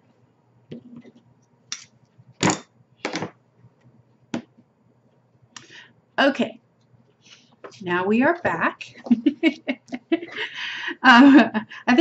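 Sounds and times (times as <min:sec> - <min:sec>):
tools knocking on tabletop: 0:02.4 - 0:03.4.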